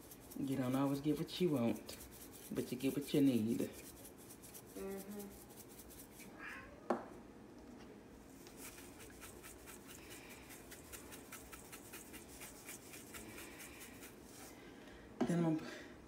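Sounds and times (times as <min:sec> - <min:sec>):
spice shaker shaking: 0:00.0 - 0:06.2, 0:08.4 - 0:14.5.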